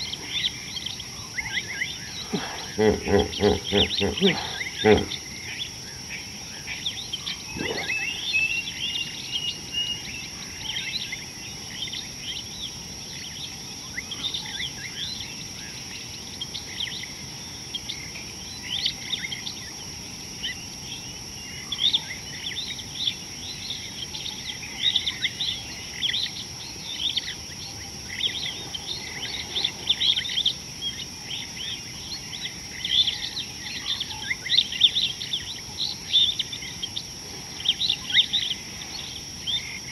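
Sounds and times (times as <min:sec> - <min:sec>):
bird chirps and calls: 0:00.0 - 0:05.3, 0:07.0 - 0:11.2
high-pitched insect drone: 0:00.0 - 0:39.9.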